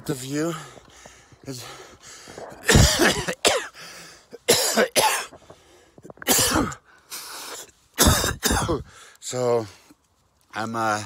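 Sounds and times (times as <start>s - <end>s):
man talking: 0.0s - 0.8s, 8.5s - 9.8s, 10.5s - 11.0s
man breathing: 0.4s - 2.6s, 3.7s - 4.4s, 5.3s - 6.2s, 6.8s - 7.8s, 8.8s - 10.0s
man coughing: 2.6s - 3.8s, 4.4s - 5.3s, 6.2s - 6.8s, 8.0s - 8.9s.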